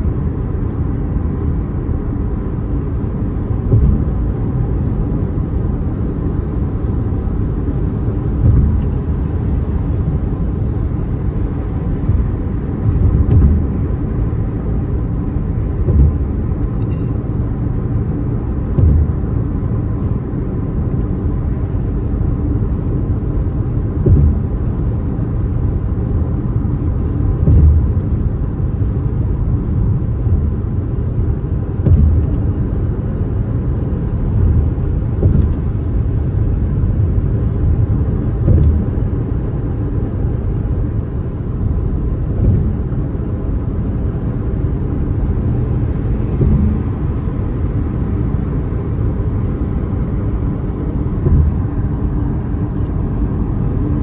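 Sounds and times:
car driving rumble: 0.0s - 54.0s
brief low thump: 3.6s - 4.4s, 8.2s - 9.4s, 12.0s - 17.2s, 18.6s - 19.7s, 23.6s - 25.0s, 27.3s - 28.3s, 31.7s - 32.8s, 34.3s - 37.5s, 38.3s - 39.5s, 42.3s - 43.2s, 46.0s - 48.4s, 50.9s - 53.6s.

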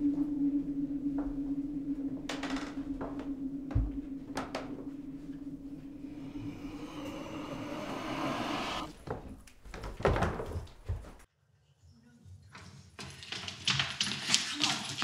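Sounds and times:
low rising drone: 0.0s - 9.6s.

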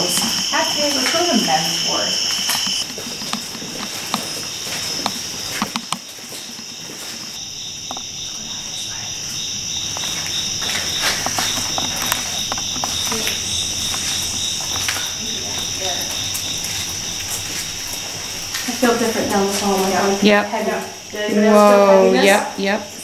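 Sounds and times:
footsteps: 0.0s - 21.2s
crickets chirping: 0.0s - 23.0s
small knocks: 2.4s - 6.7s.

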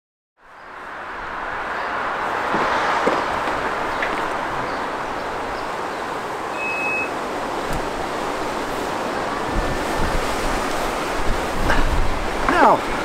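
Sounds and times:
wind: 0.4s - 13.0s
short high beep: 6.5s - 7.1s.

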